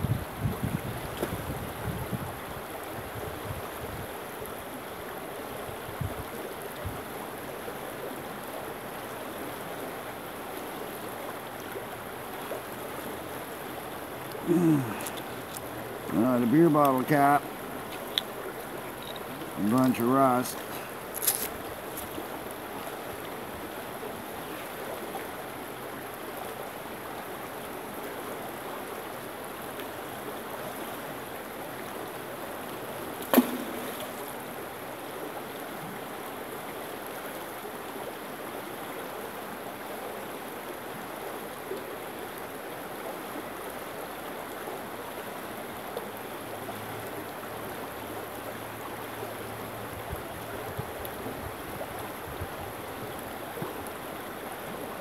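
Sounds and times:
stream running over stones: 0:00.0 - 0:55.0
sharp knock: 0:33.3 - 0:33.9.

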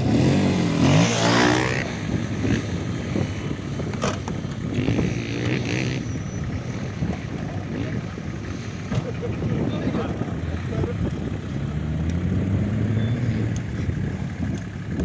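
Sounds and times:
off-road vehicle engine running: 0:00.0 - 0:15.0.

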